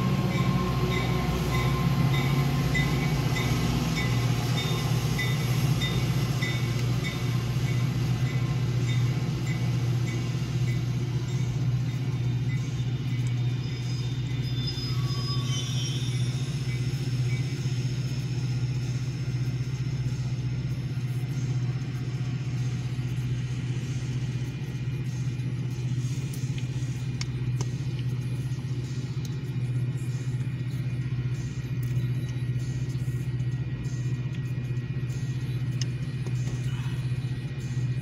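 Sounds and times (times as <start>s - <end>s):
train cars rolling past: 0.0s - 26.1s.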